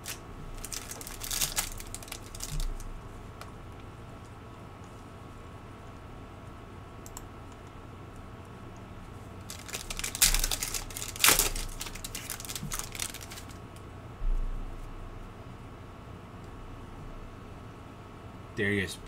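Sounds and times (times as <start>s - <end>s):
foil wrapper tearing and crinkling: 0.0s - 2.9s, 9.5s - 13.6s.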